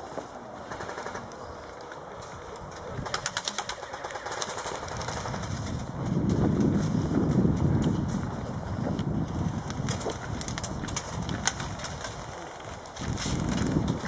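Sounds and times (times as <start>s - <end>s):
wind rumble on microphone: 4.5s - 14.0s.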